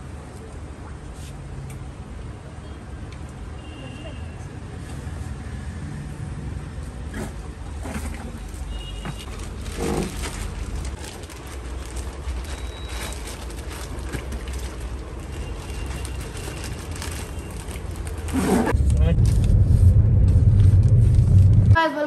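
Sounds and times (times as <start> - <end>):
plastic bags rustling: 8.0 - 18.8
low background rumble: 17.9 - 22.0.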